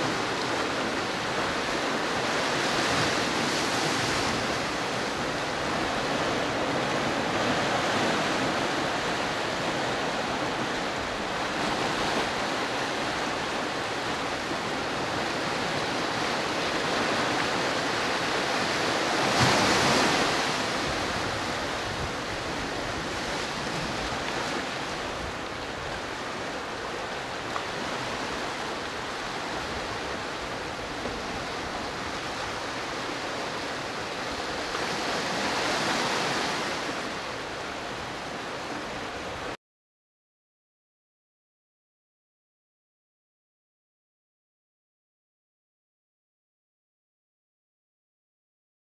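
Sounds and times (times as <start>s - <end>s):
waves washing against rocks: 0.0s - 37.8s.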